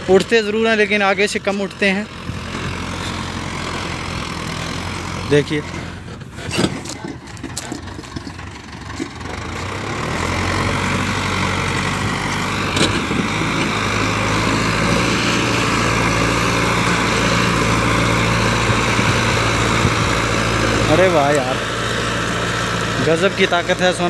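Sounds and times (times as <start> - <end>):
tractor diesel engine labouring: 0.0 - 24.0.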